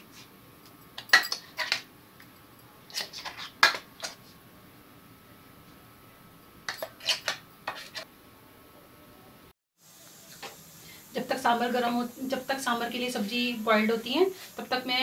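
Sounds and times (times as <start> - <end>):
spoon scraping metal jar: 6.7 - 8.1.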